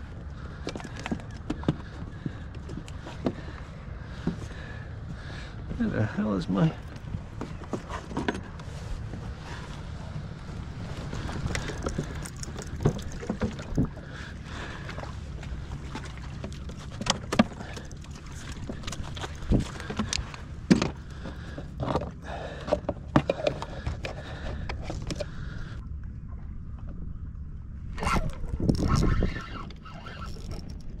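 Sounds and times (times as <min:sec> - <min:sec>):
steady low rumble: 0:00.0 - 0:31.0
fishing gear knocks and clunks: 0:00.6 - 0:03.6, 0:11.0 - 0:14.0, 0:15.9 - 0:25.4.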